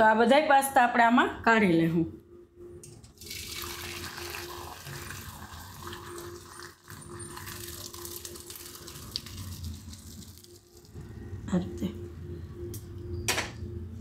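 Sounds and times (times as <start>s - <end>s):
water draining through a strainer: 3.2s - 11.0s.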